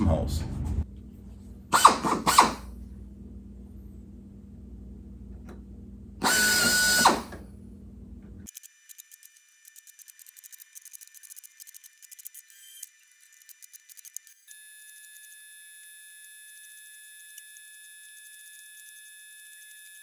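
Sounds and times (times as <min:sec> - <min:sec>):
low background hum: 0:00.0 - 0:08.5
pneumatic drill whine: 0:01.7 - 0:02.7, 0:06.2 - 0:07.4.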